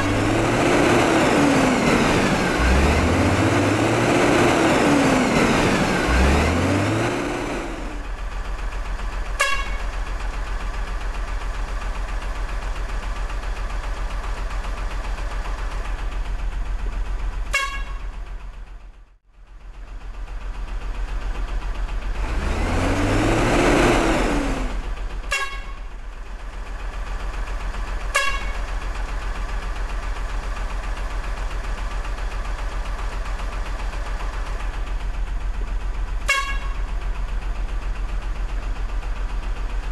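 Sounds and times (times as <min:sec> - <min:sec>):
truck engine running: 0:00.0 - 0:39.9
short horn toots: 0:09.4 - 0:09.8, 0:17.5 - 0:18.0, 0:25.3 - 0:25.8, 0:28.1 - 0:28.6, 0:36.3 - 0:36.8.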